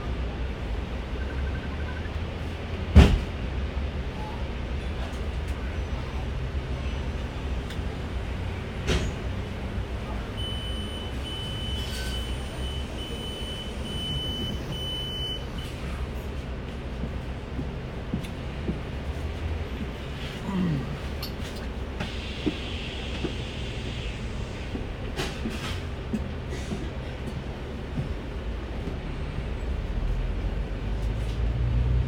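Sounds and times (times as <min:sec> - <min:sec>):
bus engine and road rumble: 0:00.0 - 0:32.0.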